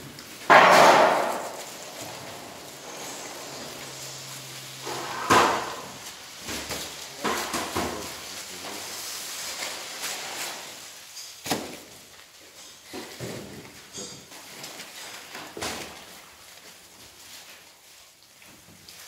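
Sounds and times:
crates knocking and clattering: 0:00.0 - 0:08.4
plastic bags rustling: 0:00.0 - 0:19.0.

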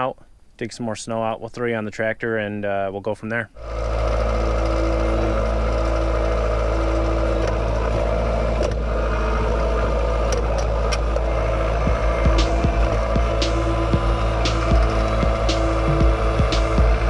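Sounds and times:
tractor diesel engine running: 0:03.6 - 0:17.0.

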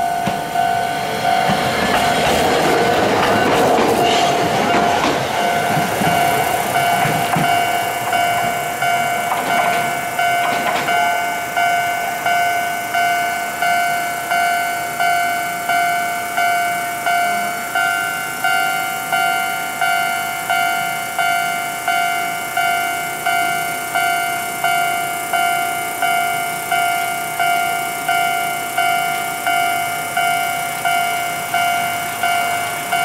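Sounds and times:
tram wheels rumbling on rails: 0:00.0 - 0:12.5
level crossing warning bell: 0:00.0 - 0:33.0.

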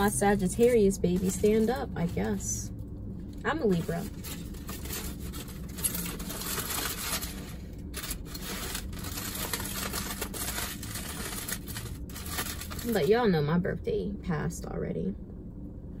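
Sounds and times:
aluminium foil crinkling: 0:00.0 - 0:02.6, 0:03.6 - 0:13.3.

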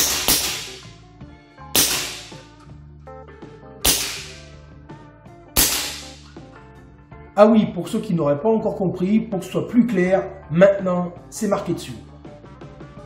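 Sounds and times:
air rifle shots: 0:00.0 - 0:00.9, 0:01.8 - 0:02.5, 0:03.8 - 0:04.6, 0:05.6 - 0:06.3.

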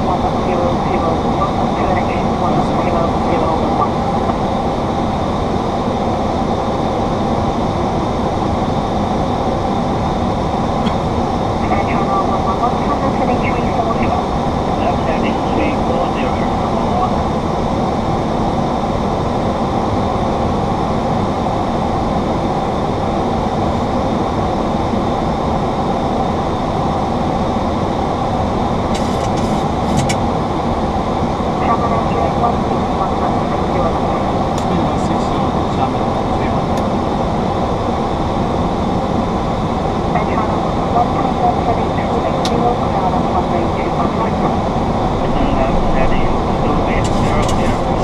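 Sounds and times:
airflow and engines in cockpit: 0:00.0 - 0:48.0
cabin air-conditioning: 0:00.0 - 0:48.0
airflow rush: 0:44.4 - 0:48.0.

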